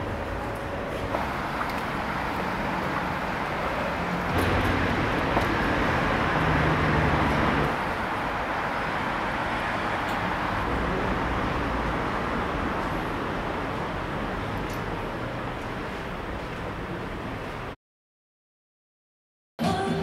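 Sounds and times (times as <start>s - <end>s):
distant road traffic: 0.0s - 17.8s
vehicle passing by: 1.2s - 14.6s.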